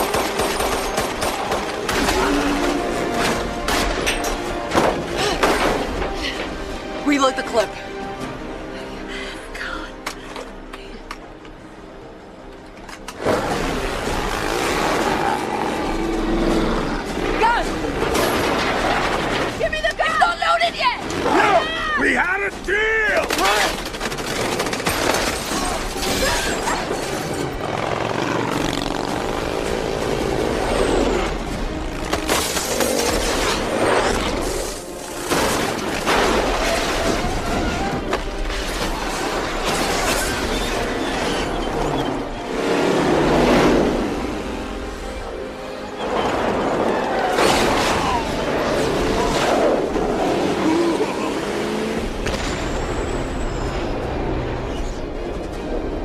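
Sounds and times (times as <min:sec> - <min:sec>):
film music score: 0:00.0 - 0:56.0
vehicle engines: 0:26.6 - 0:34.9, 0:38.0 - 0:56.0.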